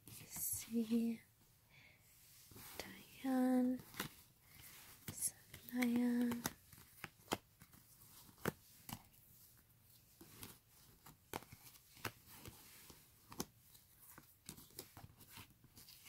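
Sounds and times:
cards clicking and tapping: 5.0s - 9.2s, 10.2s - 16.0s.

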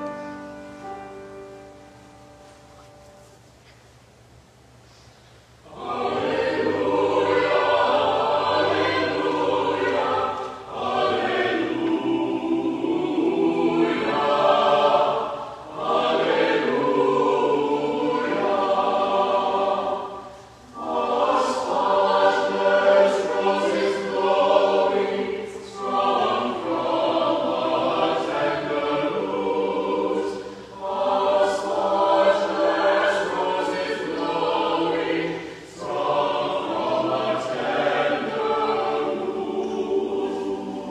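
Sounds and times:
mixed choir singing: 5.6s - 40.9s.

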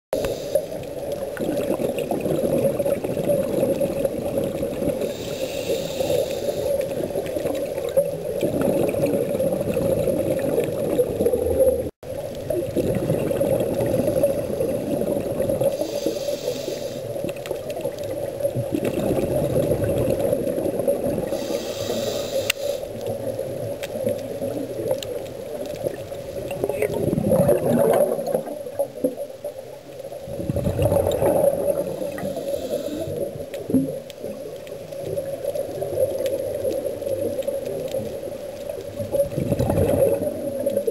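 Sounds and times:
regulator inhalation hisses: 0.2s - 0.8s, 5.0s - 6.9s, 15.7s - 17.1s, 21.3s - 23.0s, 32.1s - 33.3s
gurgle of exhaled bubbles: 0.2s - 40.9s
underwater water rush: 0.2s - 40.9s.

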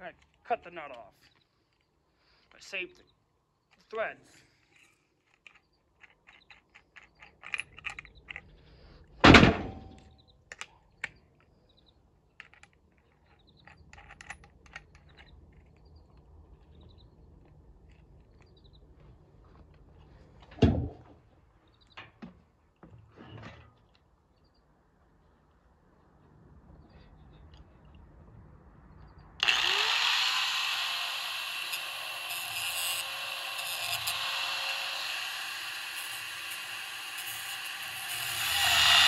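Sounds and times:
tools and metal parts clinking: 3.7s - 8.6s, 12.3s - 18.6s.

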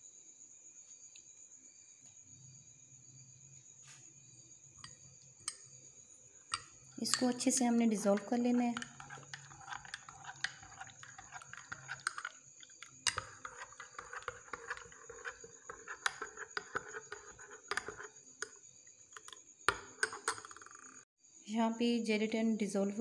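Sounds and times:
spoon clinking against glass: 4.8s - 5.7s, 6.5s - 18.1s.

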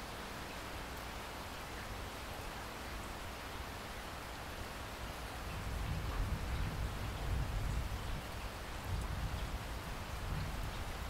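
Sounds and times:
heavy rain splashing on water: 0.0s - 11.0s.

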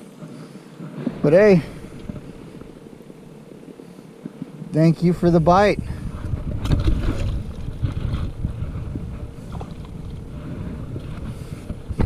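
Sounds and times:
wind rumbling on microphone: 0.0s - 12.0s
water: 5.7s - 12.0s.

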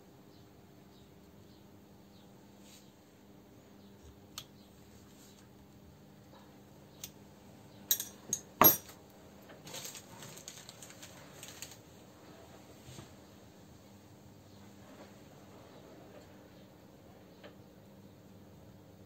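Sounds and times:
faint steady hum: 0.0s - 19.0s
sharp metallic clinks: 7.9s - 8.9s
small metal parts clicking: 7.9s - 8.9s
metal parts rattling: 7.9s - 9.0s.

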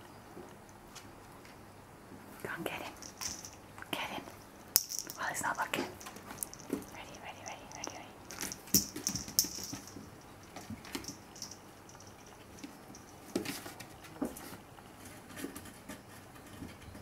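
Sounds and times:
claws tapping on wooden floor: 4.8s - 7.0s, 7.7s - 13.6s.

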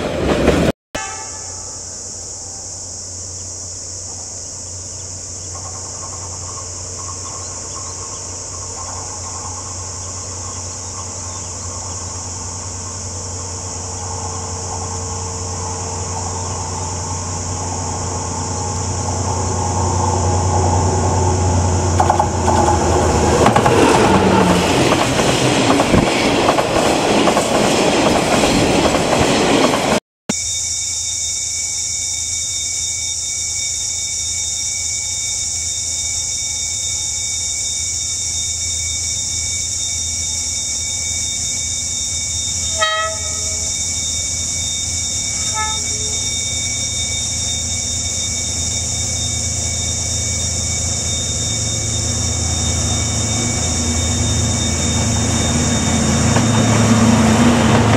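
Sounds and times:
diesel locomotive hauling train: 0.0s - 30.4s, 32.2s - 57.9s
locomotive horn toots: 1.0s - 2.6s, 42.7s - 43.7s, 45.2s - 46.6s.

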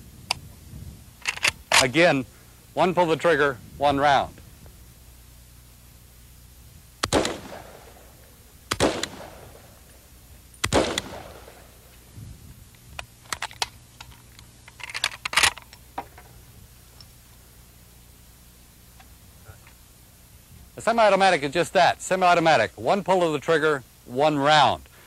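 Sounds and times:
rifle shots: 7.0s - 10.0s, 10.6s - 11.9s.

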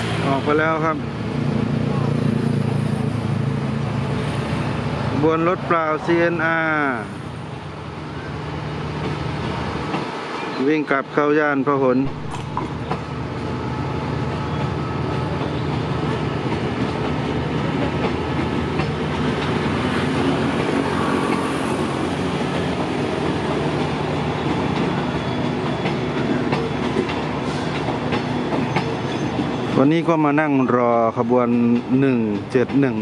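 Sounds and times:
train wheels rumbling on rails: 0.0s - 33.0s
wheels clacking over rail joints: 14.5s - 29.9s.

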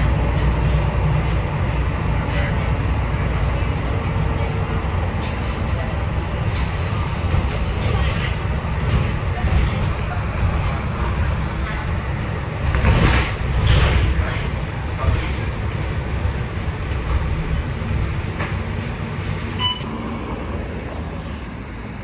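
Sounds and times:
bus engine and road noise: 0.0s - 22.0s
short electronic beep: 19.6s - 19.9s.

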